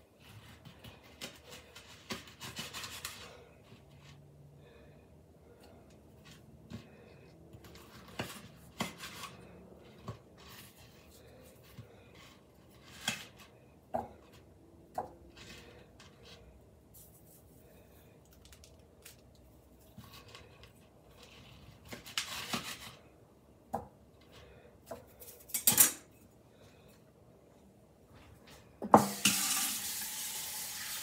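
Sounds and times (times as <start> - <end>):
knife cutting fish on plastic board: 7.6 - 11.0.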